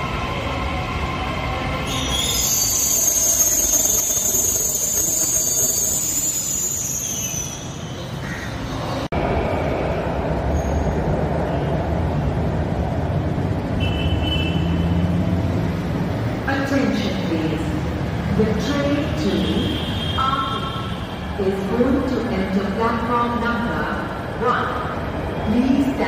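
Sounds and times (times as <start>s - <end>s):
train wheels squealing: 1.0s - 9.0s, 10.5s - 11.0s.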